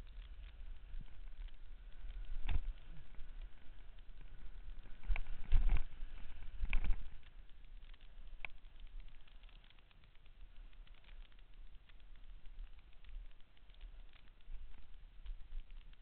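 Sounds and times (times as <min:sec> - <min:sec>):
wind rumble on microphone: 0:00.0 - 0:09.1.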